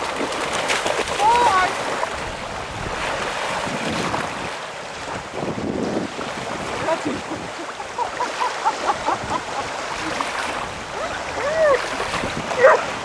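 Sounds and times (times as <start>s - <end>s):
lake water splashing: 0.0s - 13.0s
wind buffeting microphone: 0.0s - 13.0s
dog whines and yips: 12.6s - 12.9s.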